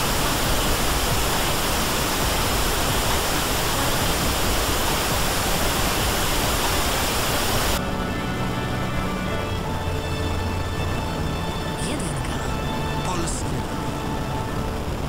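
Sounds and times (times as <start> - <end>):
radio static hiss: 0.0 - 8.2, 11.6 - 15.0.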